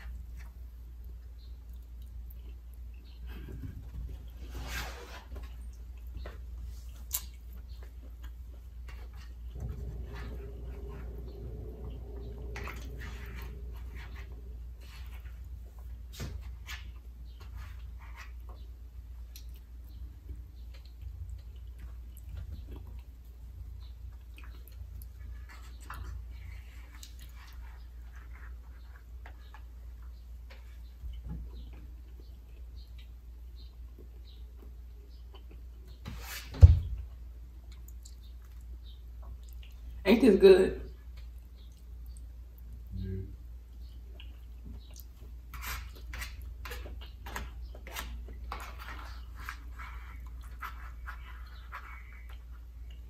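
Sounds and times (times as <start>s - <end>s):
chewing: 0.0s - 3.4s, 17.7s - 36.0s, 37.6s - 40.0s, 43.7s - 53.0s
steady low hum: 8.0s - 16.1s.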